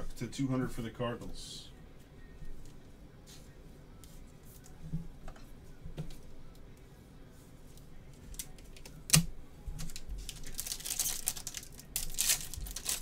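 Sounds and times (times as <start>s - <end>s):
foil wrapper crinkling: 9.8s - 13.0s.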